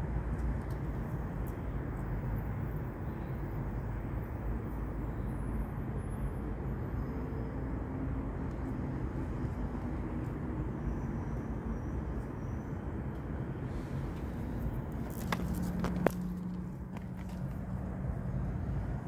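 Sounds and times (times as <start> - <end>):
low outdoor rumble: 13.1 - 19.0.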